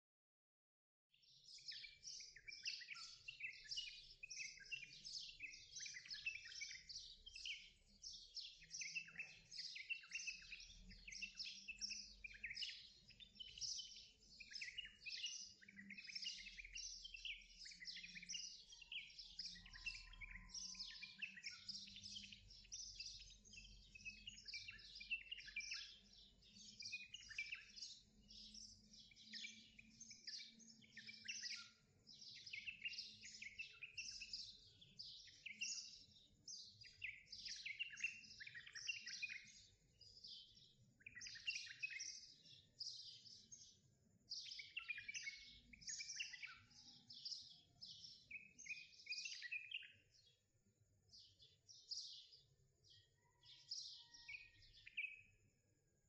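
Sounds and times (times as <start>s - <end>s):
small birds chirping: 1.1s - 56.0s.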